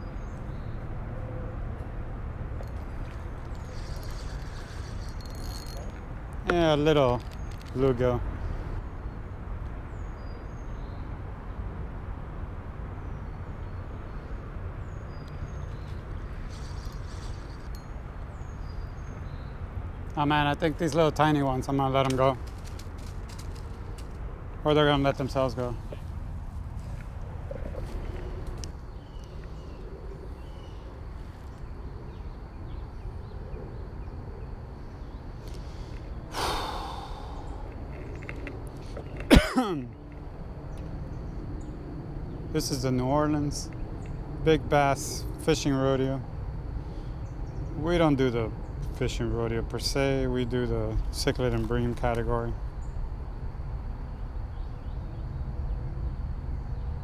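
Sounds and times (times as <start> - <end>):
low outdoor rumble: 0.0 - 57.0
small birds chirping: 2.6 - 11.6, 13.0 - 53.1
person sighing: 36.3 - 37.7.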